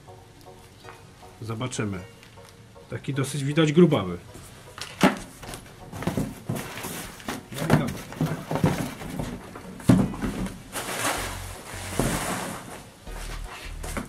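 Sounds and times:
plastic bags rustling: 0:04.8 - 0:14.0.

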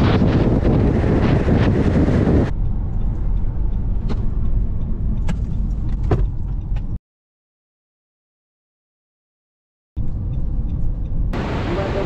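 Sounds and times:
road and wind noise in car: 0:00.0 - 0:07.0, 0:10.0 - 0:12.0
low rumble of car moving slowly: 0:02.4 - 0:07.0, 0:10.0 - 0:12.0.

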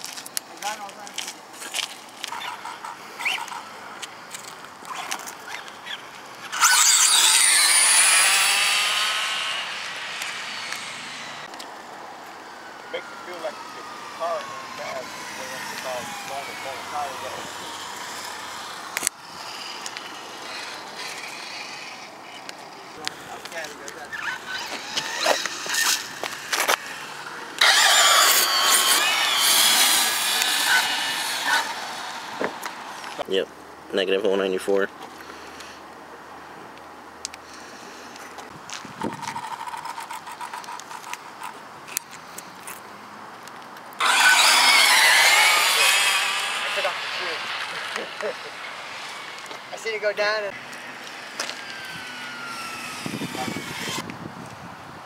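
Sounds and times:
high-pitched electric motor whine: 0:06.4 - 0:11.6, 0:12.3 - 0:22.4, 0:23.0 - 0:33.3, 0:44.0 - 0:54.1.

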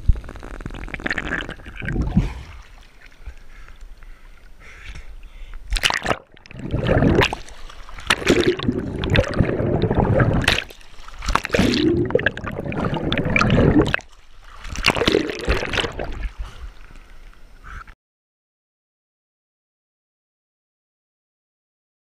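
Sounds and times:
water sloshing and gurgling: 0:00.7 - 0:17.6.

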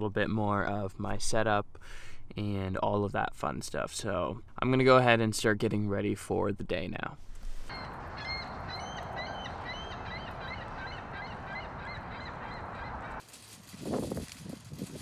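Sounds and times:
flock of birds calling: 0:07.7 - 0:13.2.

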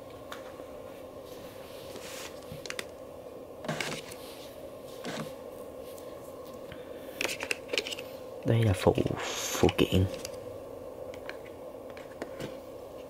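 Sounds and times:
faint steady hum: 0:00.0 - 0:13.0
rustling and clicks of handling: 0:01.3 - 0:03.0.

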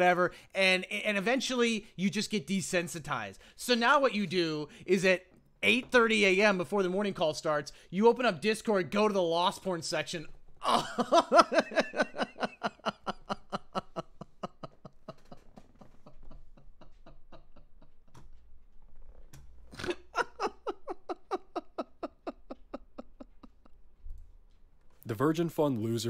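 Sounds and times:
man laughing hard: 0:10.6 - 0:17.9, 0:19.8 - 0:23.8.

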